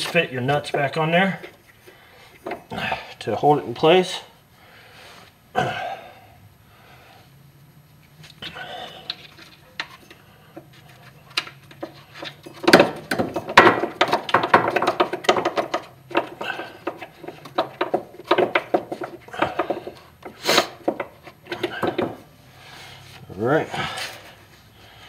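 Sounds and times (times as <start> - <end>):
nuts clicking and rattling: 8.3 - 22.3.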